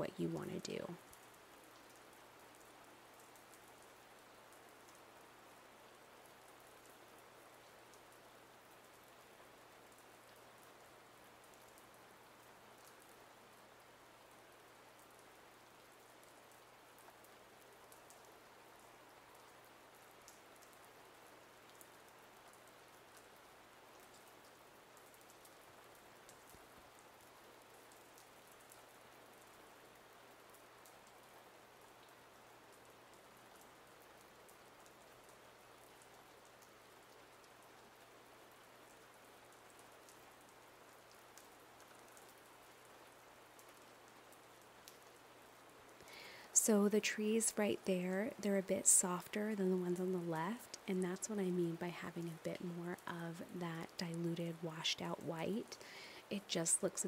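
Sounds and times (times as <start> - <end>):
faint steady hiss: 0.0 - 57.0
faint ticks: 9.8 - 13.3, 14.5 - 46.7.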